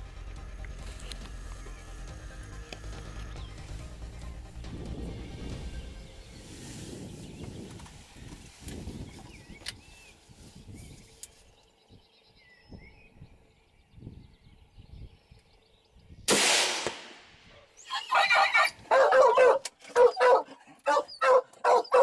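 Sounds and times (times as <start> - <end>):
low wind rumble: 0.0 - 16.3
rifle shot: 16.3 - 17.5.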